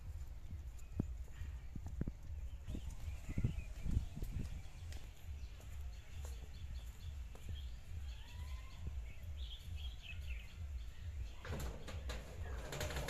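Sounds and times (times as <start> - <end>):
low rumbling background noise: 0.0 - 13.0
small birds chirping: 0.0 - 13.0
soft footsteps: 0.0 - 13.0
tin gate rattling: 11.3 - 13.0.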